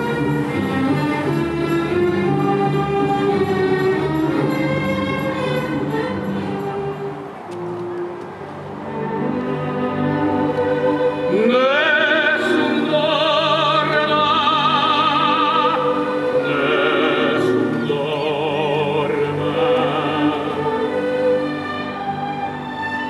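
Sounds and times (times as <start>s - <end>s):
orchestral accompaniment: 0.0s - 23.0s
operatic singing with vibrato: 8.8s - 23.0s.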